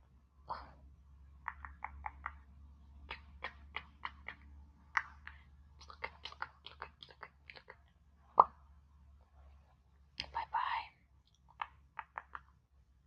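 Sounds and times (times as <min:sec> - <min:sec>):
wet mouth clicks and smacks: 0:01.4 - 0:02.4, 0:03.1 - 0:07.8, 0:11.3 - 0:12.5.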